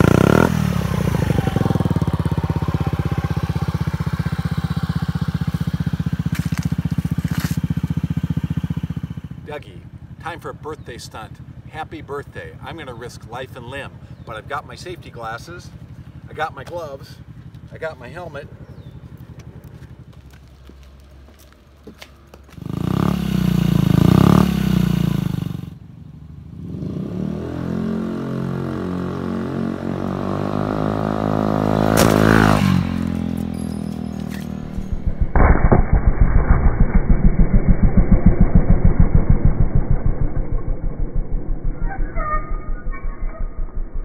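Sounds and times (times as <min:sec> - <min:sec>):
scooter engine revving and accelerating: 0:00.0 - 0:09.4, 0:22.5 - 0:25.9, 0:26.5 - 0:35.2.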